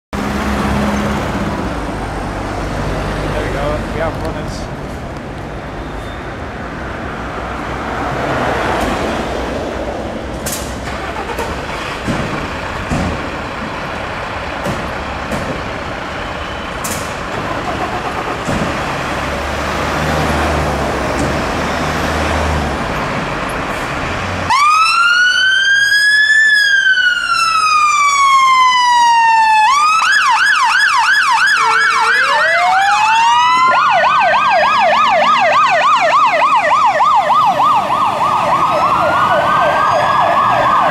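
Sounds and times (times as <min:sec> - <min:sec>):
road traffic: 0:00.1 - 0:40.9
idling diesel engines: 0:00.8 - 0:07.8, 0:08.8 - 0:25.0
fire engine siren wail and yelp: 0:06.4 - 0:40.9
second fire engine siren: 0:10.9 - 0:12.6, 0:24.5 - 0:40.9.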